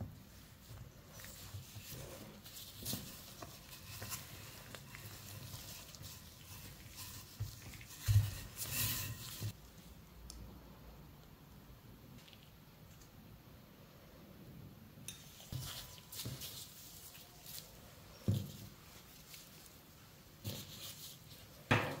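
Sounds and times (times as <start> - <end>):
rolling pin rolling over dough: 0.0 - 9.6.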